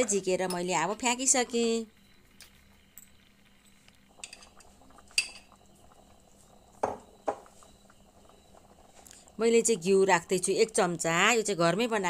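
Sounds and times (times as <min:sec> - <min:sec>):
curry bubbling: 0:00.1 - 0:12.0.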